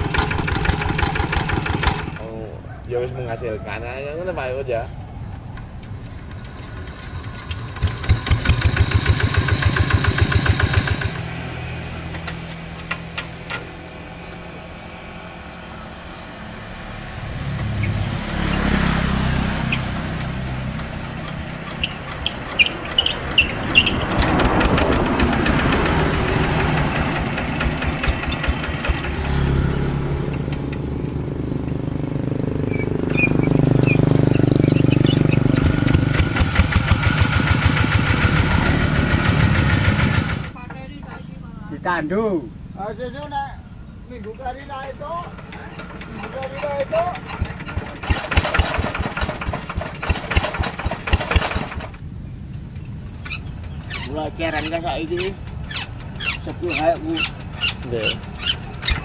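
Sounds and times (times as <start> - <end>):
diesel engine thudding: 0.0 - 2.3, 4.7 - 41.7, 42.5 - 59.0
hand crank whirring and clicking: 20.8 - 25.9.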